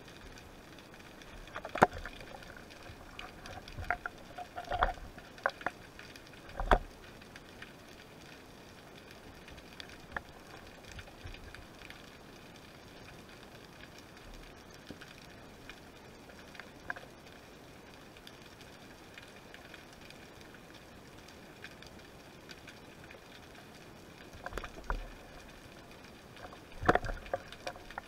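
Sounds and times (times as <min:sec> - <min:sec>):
faint steady hiss: 0:00.0 - 0:28.0
underwater speargun knocks and clicks: 0:26.8 - 0:28.0.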